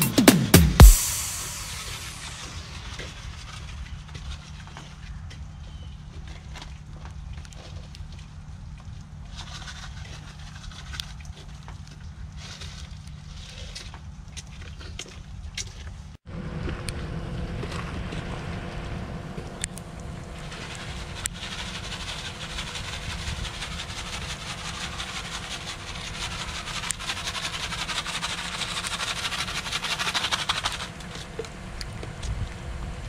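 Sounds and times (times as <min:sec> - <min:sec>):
low rumble: 0:00.0 - 0:04.7.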